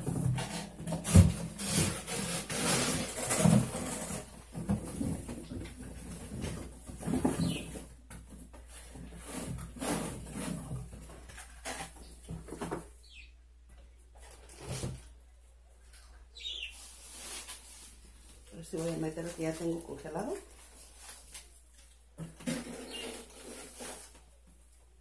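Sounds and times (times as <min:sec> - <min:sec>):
plastic bags rustling: 0:16.5 - 0:24.5.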